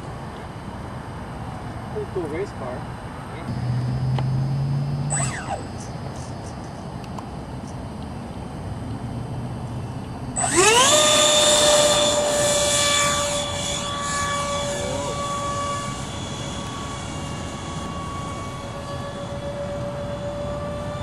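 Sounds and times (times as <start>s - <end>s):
electric motor whine: 3.4s - 7.8s, 8.6s - 21.0s.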